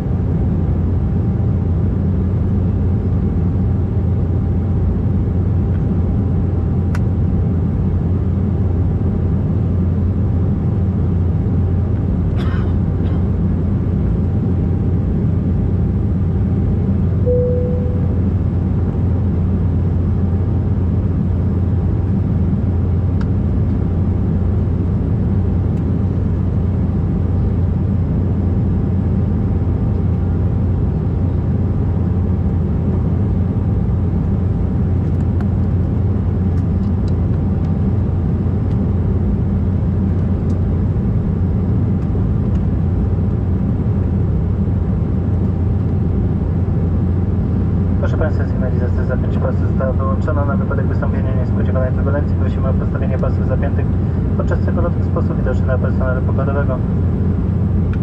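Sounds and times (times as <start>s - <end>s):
airplane cabin engine rumble: 0.0s - 58.0s
faint steady whine: 13.8s - 58.0s.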